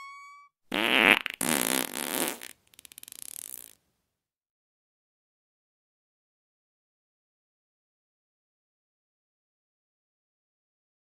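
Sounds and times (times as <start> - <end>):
fart sound effect: 0.7 - 3.8.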